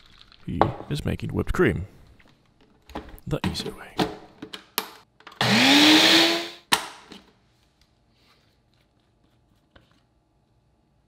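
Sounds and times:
blender motor whining: 0:05.4 - 0:06.7.

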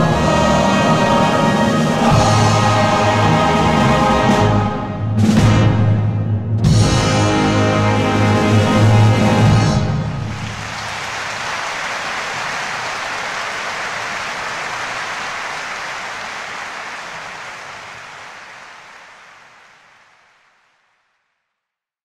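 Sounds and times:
audience applauding: 0:10.2 - 0:21.2.

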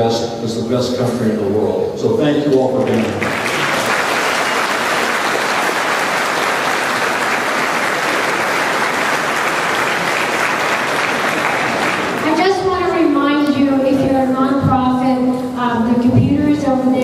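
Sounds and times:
audience applauding: 0:02.8 - 0:12.5.

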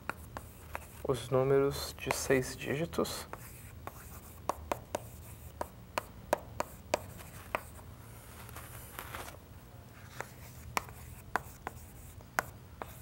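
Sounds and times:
chalk tapping on a chalkboard: 0:00.0 - 0:01.0, 0:02.0 - 0:02.3, 0:03.2 - 0:07.8, 0:10.1 - 0:13.0
chalk scratching: 0:00.1 - 0:01.2, 0:03.2 - 0:05.7, 0:06.6 - 0:09.3, 0:10.0 - 0:13.0.

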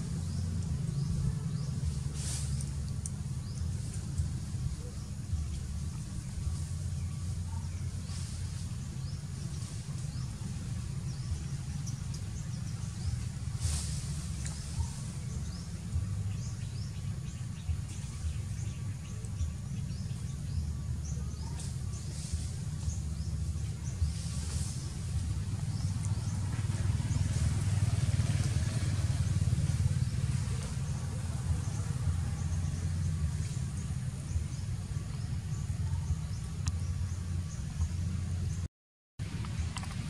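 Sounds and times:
low rumble: 0:00.0 - 0:40.0
faint bird chirps: 0:00.2 - 0:27.4.

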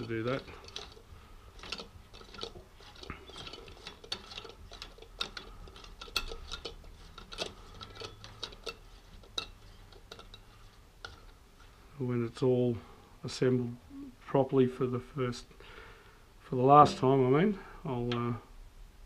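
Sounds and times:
metallic clicks of nuts threaded on: 0:00.0 - 0:01.0.

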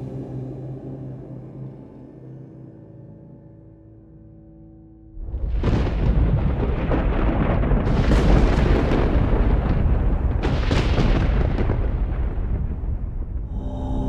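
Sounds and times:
thunder crashes: 0:05.2 - 0:13.8
thunder rumble: 0:05.2 - 0:14.0.

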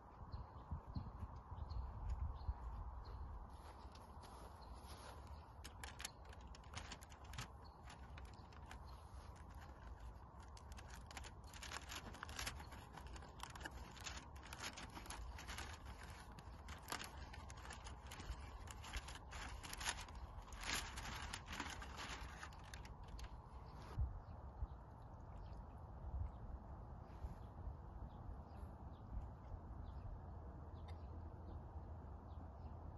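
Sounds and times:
aluminium foil crinkling: 0:05.0 - 0:23.4.

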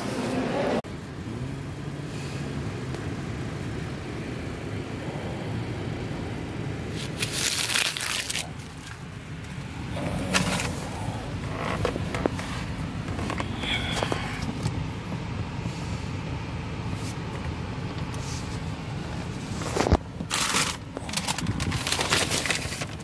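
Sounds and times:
car engine hum: 0:00.0 - 0:23.0
paper receipt crinkling: 0:07.0 - 0:09.0, 0:19.7 - 0:23.0.

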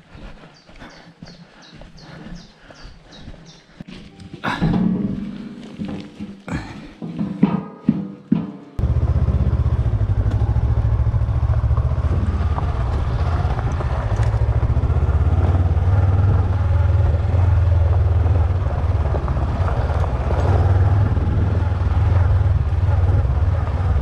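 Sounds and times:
motorcycle engine running: 0:08.8 - 0:24.0.

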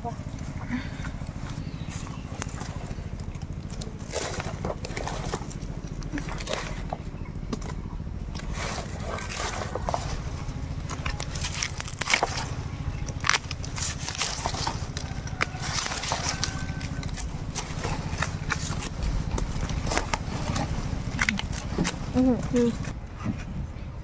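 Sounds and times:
steady low hum: 0:00.0 - 0:24.0
dry palm leaves crackling: 0:08.3 - 0:22.9.

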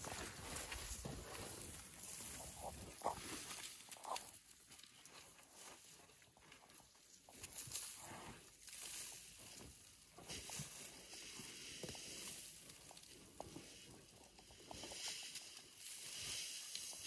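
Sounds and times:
rustling hiss of flung sand: 0:14.6 - 0:17.0.

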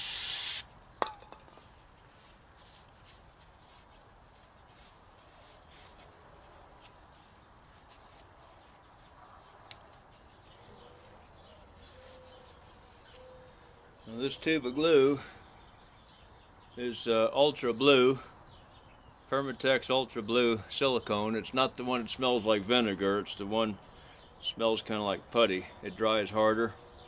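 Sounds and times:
aerosol spray hiss: 0:00.0 - 0:00.6.

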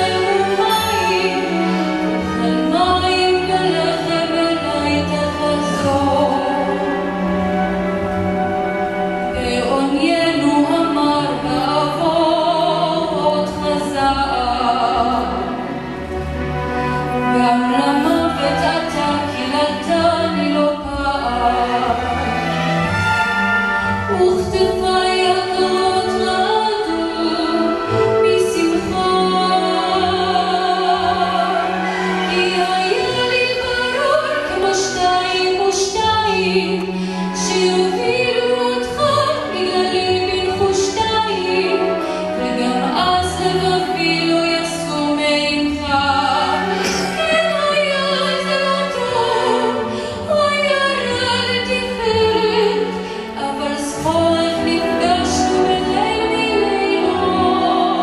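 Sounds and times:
symphony orchestra with strings: 0:00.0 - 0:58.0
woman singing into a microphone: 0:32.3 - 0:58.0.

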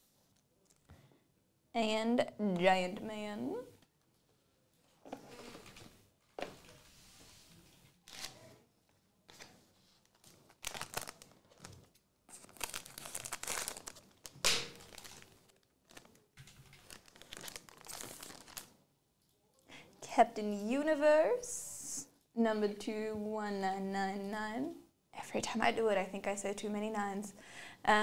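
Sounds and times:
foil wrappers tearing and crinkling: 0:10.5 - 0:18.7.

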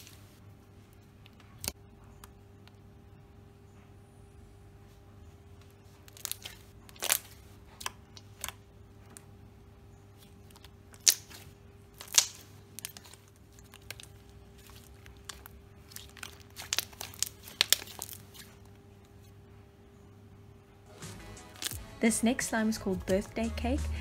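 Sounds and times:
slime squished by hand: 0:06.0 - 0:08.6, 0:10.2 - 0:18.7.

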